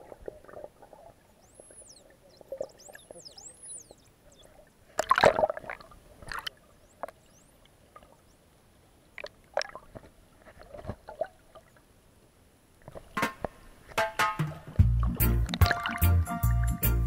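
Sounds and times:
bubbly water gurgles: 0:00.0 - 0:03.4, 0:14.9 - 0:16.7
underwater clicks and knocks: 0:12.8 - 0:16.0.

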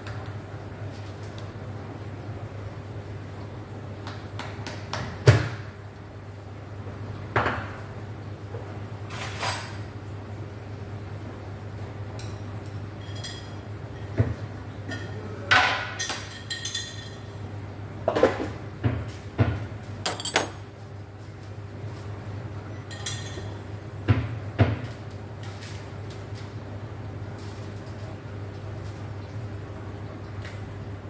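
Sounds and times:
cups and glassware clinking: 0:12.2 - 0:17.3, 0:20.0 - 0:20.7, 0:22.8 - 0:23.6.

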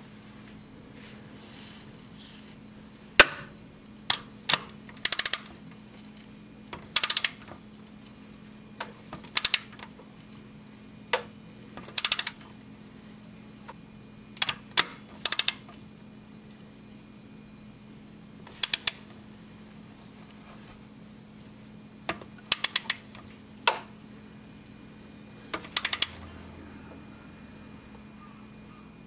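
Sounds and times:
faint steady hum: 0:00.0 - 0:29.0
ratchet clicking: 0:04.9 - 0:05.5, 0:06.9 - 0:07.4, 0:09.3 - 0:09.8, 0:11.9 - 0:12.4, 0:15.2 - 0:15.6, 0:22.5 - 0:23.0, 0:25.6 - 0:26.2.

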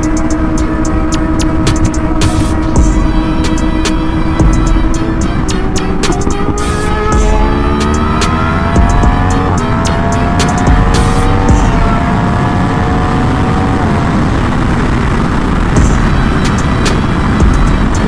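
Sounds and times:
motorcycle engine accelerating: 0:00.0 - 0:18.0
wind rush on microphone: 0:11.4 - 0:18.0.

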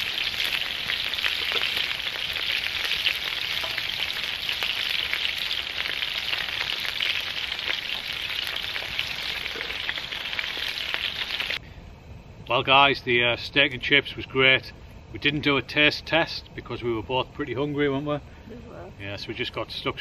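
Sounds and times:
oil spitting crackles: 0:00.0 - 0:11.6
steak sizzling on a griddle: 0:00.0 - 0:11.6.

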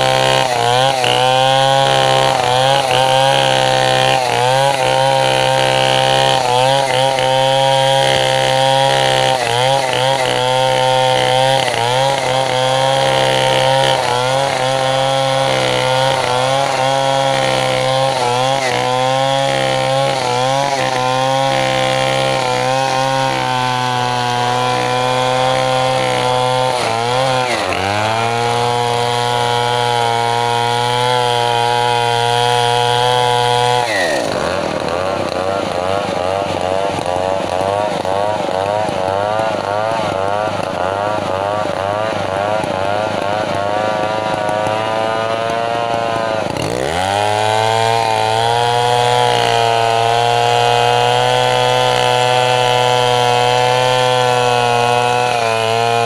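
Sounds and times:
chainsaw cutting through log: 0:00.0 - 0:56.0.

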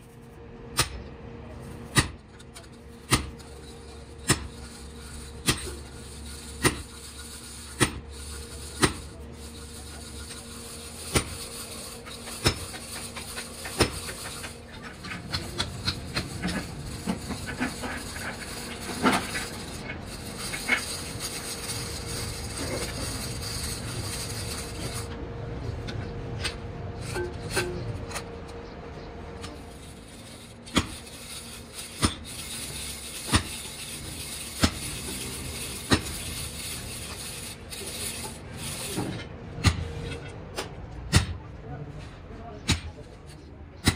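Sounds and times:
metal tools scraping and knocking: 0:02.3 - 0:25.1, 0:25.8 - 0:28.6.

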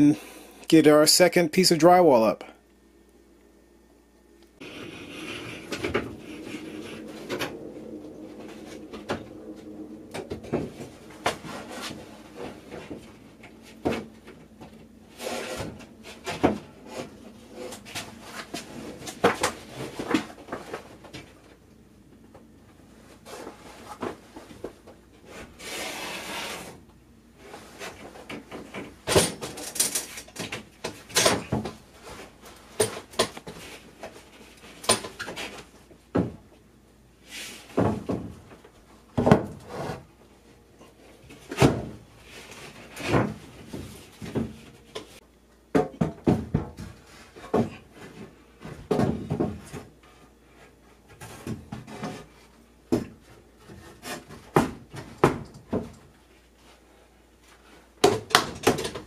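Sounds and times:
drywall sheet scraping: 0:04.6 - 0:09.6, 0:10.2 - 0:14.0, 0:15.0 - 0:21.0, 0:23.0 - 0:26.8, 0:37.2 - 0:37.9, 0:39.2 - 0:40.1
drywall sheet knocking and thumping: 0:45.7 - 0:47.8, 0:48.6 - 0:49.9, 0:52.9 - 0:56.0.

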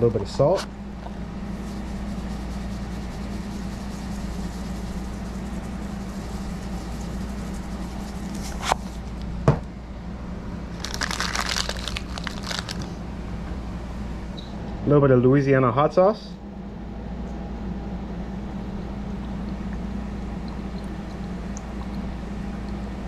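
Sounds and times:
low hum: 0:00.0 - 0:15.4, 0:16.0 - 0:23.0
plastic mesh bag crinkling: 0:10.7 - 0:13.0.

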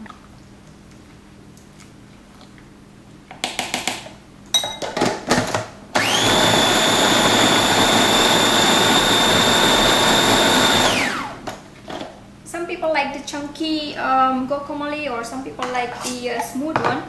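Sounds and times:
food processor motor whine: 0:06.0 - 0:11.5.

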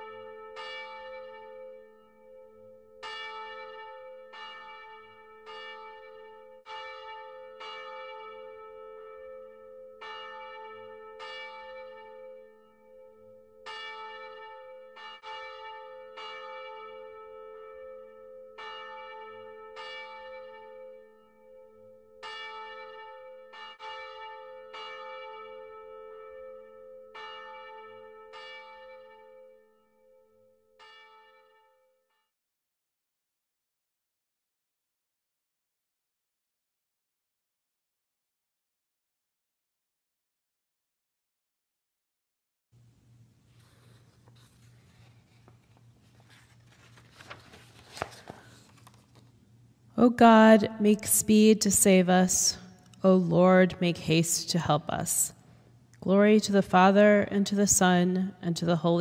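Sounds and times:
church bells ringing: 0:00.0 - 0:31.9.

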